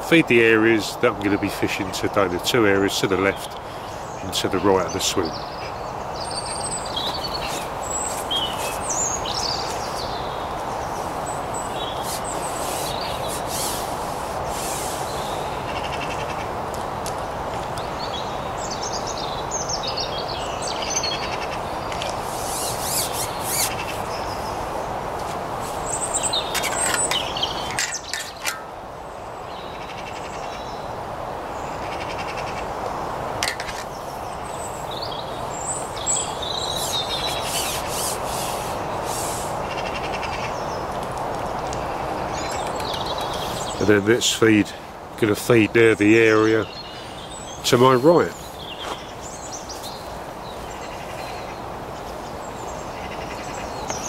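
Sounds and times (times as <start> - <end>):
songbirds chirping: 0.0 - 54.0
distant motorway drone: 20.8 - 30.4.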